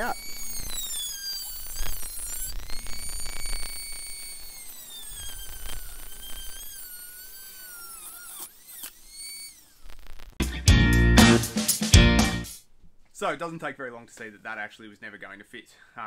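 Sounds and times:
rotary tool cutting metal: 0.0 - 10.3.

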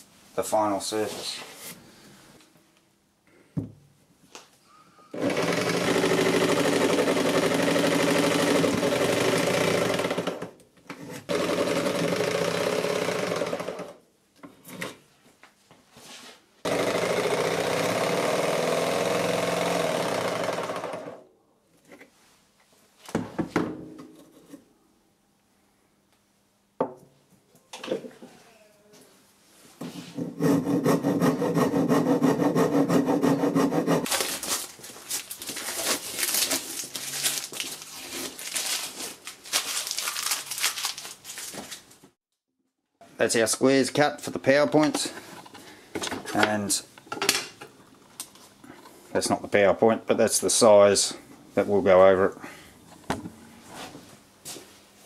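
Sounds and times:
jigsaw cutting wood: 5.2 - 10.6, 11.3 - 14.0, 16.7 - 21.3, 30.5 - 34.1.

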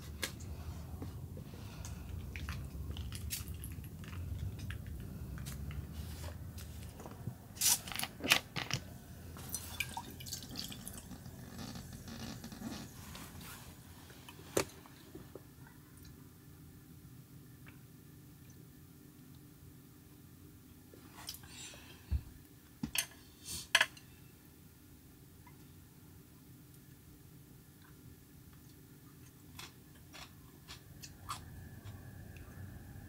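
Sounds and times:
low steady hum: 0.0 - 33.0
liquid pouring into metal cup: 9.5 - 11.1.

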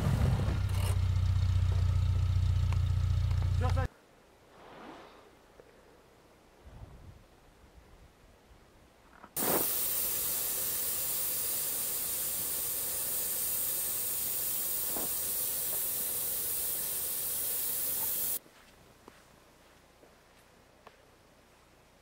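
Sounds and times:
air hissing from tyre valve: 9.4 - 18.4.

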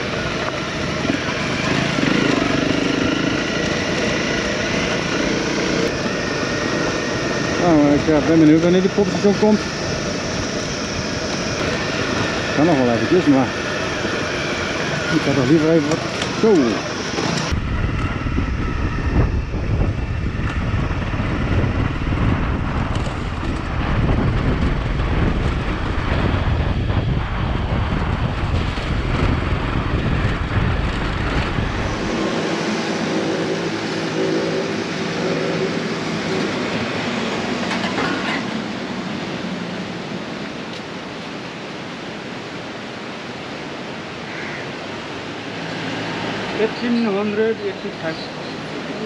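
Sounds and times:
motorcycle engine rumble: 0.0 - 38.9
pitched engine hum: 0.0 - 42.7
wind buffeting: 0.0 - 49.0.

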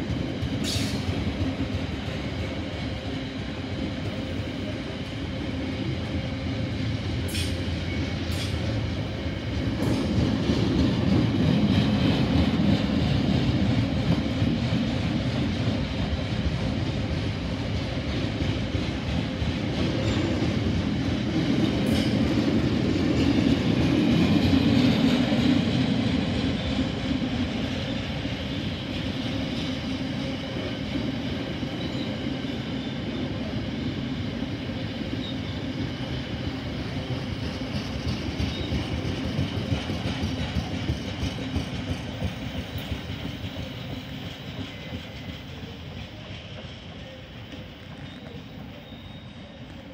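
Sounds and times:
freight train rumble: 0.0 - 49.9
train wheel clatter: 0.0 - 49.9.

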